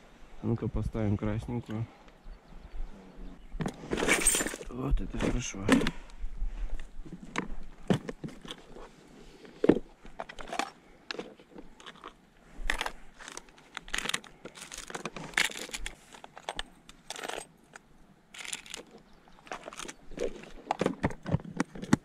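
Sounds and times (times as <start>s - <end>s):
plastic packets crinkling: 12.8s - 16.4s, 18.4s - 20.8s.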